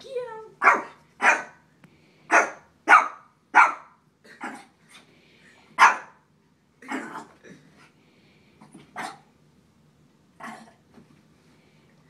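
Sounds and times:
small dog barking: 0:00.6 - 0:01.6, 0:02.3 - 0:04.0, 0:05.8 - 0:06.2, 0:09.0 - 0:09.2.

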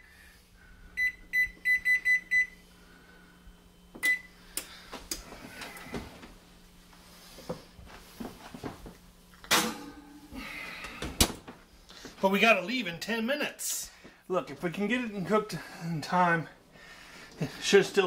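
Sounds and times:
oven control panel beeping: 0:04.0 - 0:04.3.

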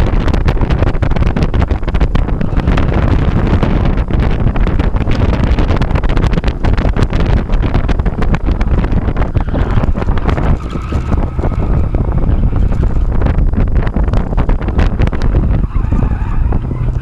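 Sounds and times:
car engine running hard: 0:00.0 - 0:17.0
wind buffeting microphone: 0:00.0 - 0:17.0
tyres squealing: 0:15.4 - 0:17.0.

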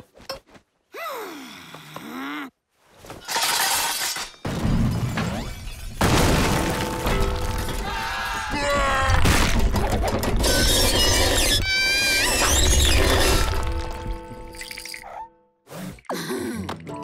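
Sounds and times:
stonework shattering: 0:03.3 - 0:11.3
music: 0:16.2 - 0:17.0.

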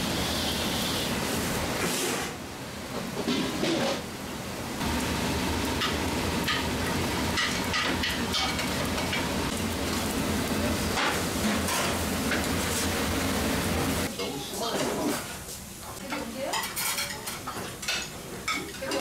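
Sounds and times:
gas burner hum: 0:00.0 - 0:16.6
sauce sizzling in a hot pan: 0:04.8 - 0:14.1.

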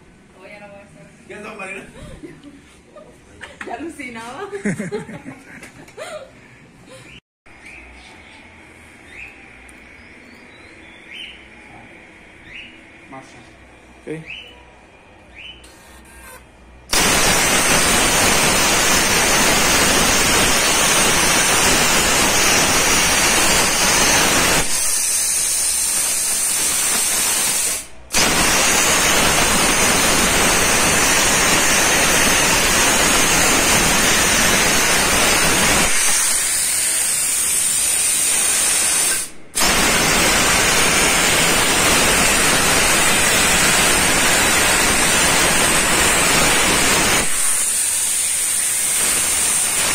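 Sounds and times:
plasma torch hissing: 0:16.9 - 0:49.9.

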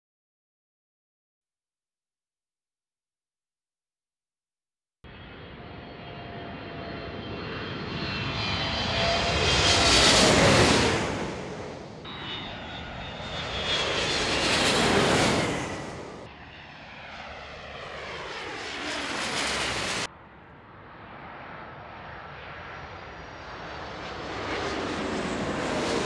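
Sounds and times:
descending engine whine: 0:05.1 - 0:20.7
jet airliner passing overhead: 0:05.1 - 0:26.0.

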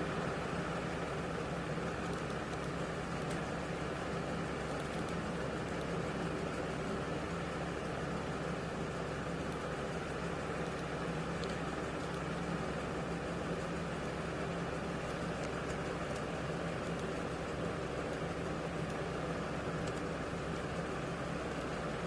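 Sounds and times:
background hum and hiss: 0:00.0 - 0:22.0
low constant tone: 0:00.0 - 0:22.0
faint ticks: 0:09.2 - 0:12.9, 0:13.5 - 0:22.0.

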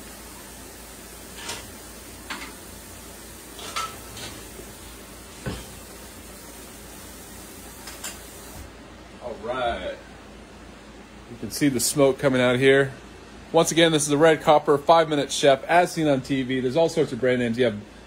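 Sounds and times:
patties sizzling: 0:00.0 - 0:08.7.

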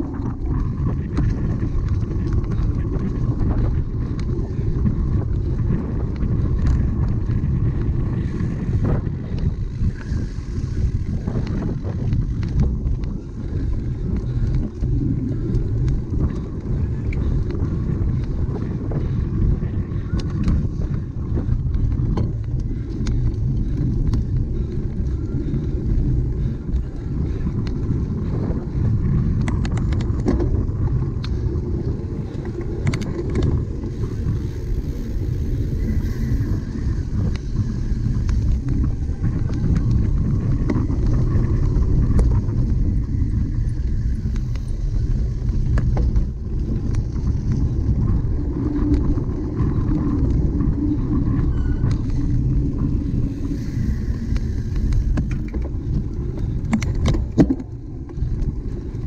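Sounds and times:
bike rattling over rough ground: 0:00.0 - 0:59.0
wind buffeting microphone: 0:00.0 - 0:59.0
sharp clicks and knocks: 0:56.6 - 0:57.7.

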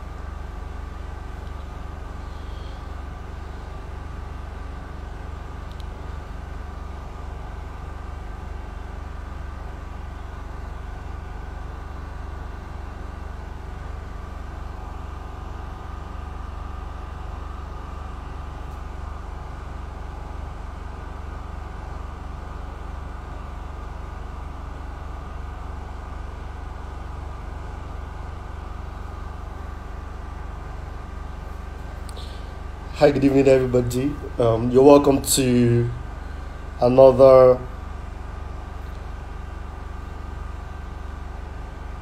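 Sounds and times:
faint steady hum: 0:00.0 - 0:42.0
steady low rumble: 0:28.7 - 0:38.1.

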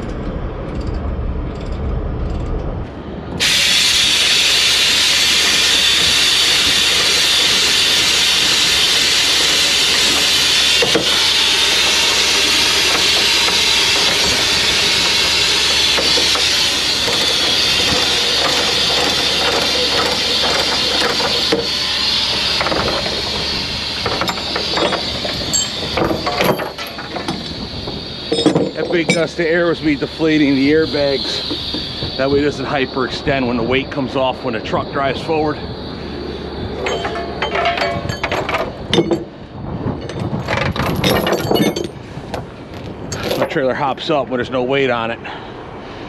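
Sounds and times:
compressed air hissing out: 0:03.4 - 0:33.7.

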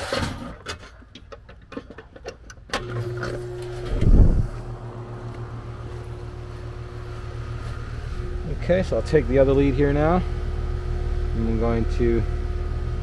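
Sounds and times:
compressor and fan hum: 0:02.7 - 0:13.0.

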